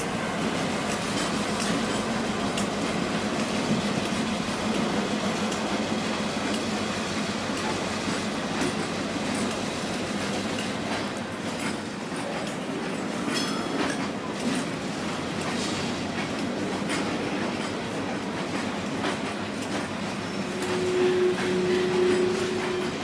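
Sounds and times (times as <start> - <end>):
diesel locomotive engine hum: 0.0 - 23.0
train wheels clicking over rail joints: 0.0 - 23.0
wheel squeal: 20.2 - 23.0.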